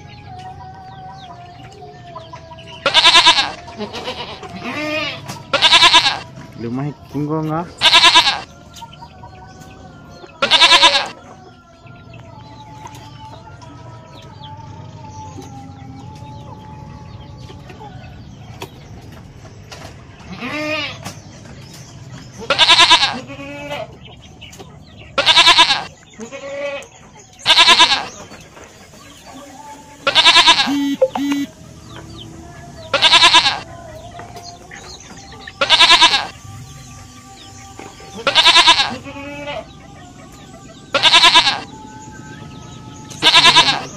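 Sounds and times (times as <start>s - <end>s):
goats bleating: 2.8s - 6.3s, 7.7s - 8.5s, 10.3s - 11.2s, 20.3s - 21.0s, 22.4s - 24.0s, 25.2s - 28.4s, 30.0s - 31.5s, 32.9s - 33.7s, 35.6s - 36.4s, 38.1s - 39.8s, 40.9s - 41.7s, 43.1s - 43.9s.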